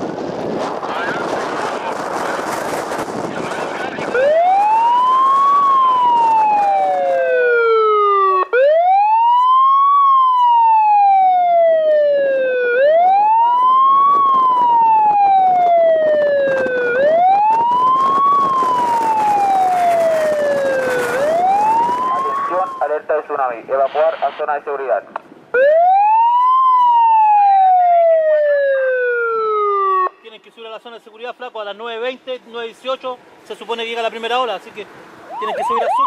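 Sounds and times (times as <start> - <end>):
siren wailing: 3.6 - 23.3, 25.5 - 30.2, 35.3 - 36.0
lower siren tone: 4.0 - 22.9, 25.5 - 30.2, 35.3 - 36.0.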